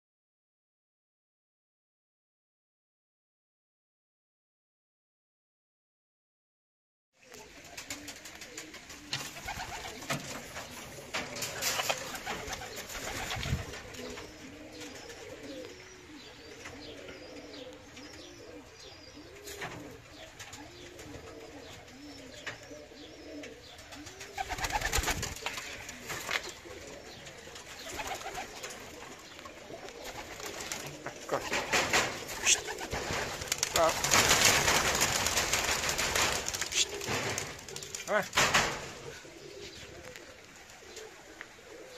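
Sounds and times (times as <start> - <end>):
pigeons cooing: 7.2 - 41.9
wings flapping: 7.3 - 15.4, 23.7 - 39.1.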